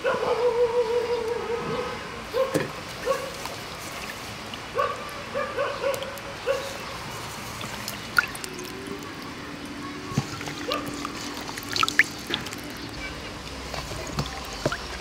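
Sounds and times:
dog barking: 0.0s - 3.4s, 4.7s - 6.8s
water trickling and splashing: 2.2s - 15.0s.

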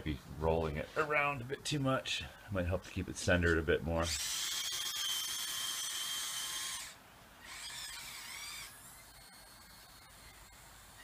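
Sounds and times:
small electric motors whining: 4.0s - 11.0s.

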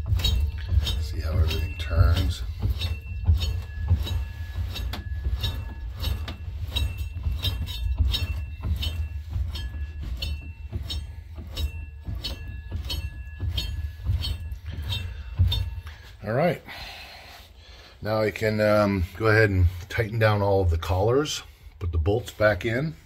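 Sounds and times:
drive chains rattling over sprockets: 0.0s - 16.8s.

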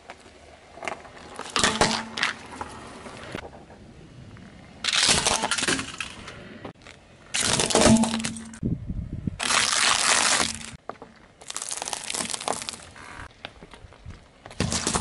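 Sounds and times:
car tyre crushing small objects: 4.8s - 6.2s, 6.8s - 8.6s, 9.4s - 15.0s.

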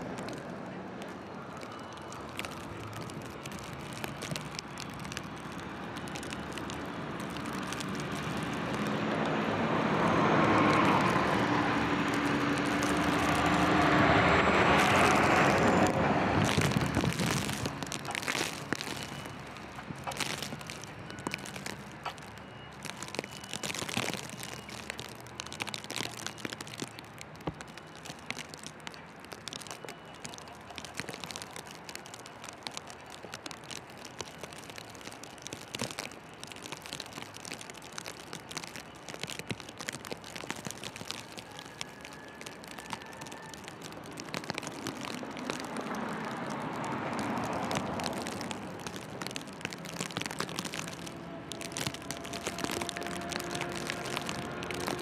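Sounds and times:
truck driving past: 8.3s - 17.9s.

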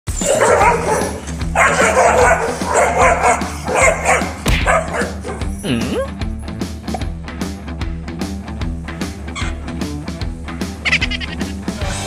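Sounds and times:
dog barking and yapping: 0.1s - 5.6s.

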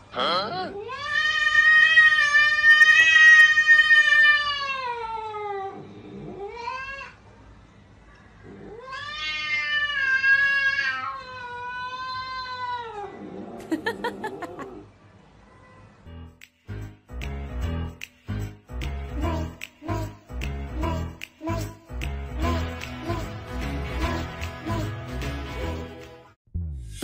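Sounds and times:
cat yowling: 8.7s - 13.2s.

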